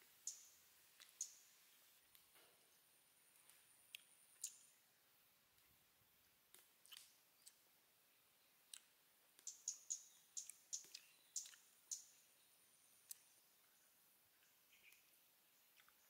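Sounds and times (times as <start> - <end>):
mouth clicks and smacks eating: 6.5 - 7.6, 8.7 - 9.6, 10.4 - 12.0, 15.7 - 16.0.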